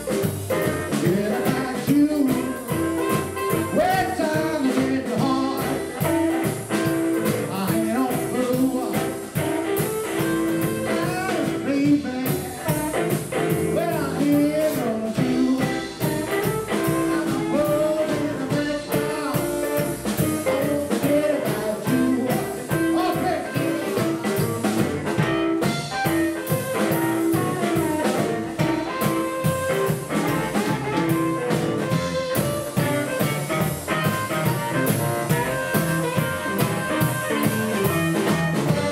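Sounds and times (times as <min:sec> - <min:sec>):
double bass: 0:00.0 - 0:38.9
drum kit: 0:00.0 - 0:38.9
electric guitar: 0:00.0 - 0:38.9
harmonica: 0:00.0 - 0:38.9.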